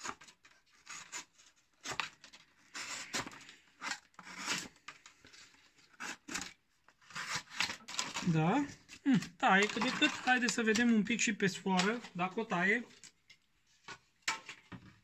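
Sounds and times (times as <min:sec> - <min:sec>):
knife slicing through cardboard: 0:00.0 - 0:04.8, 0:05.9 - 0:08.2.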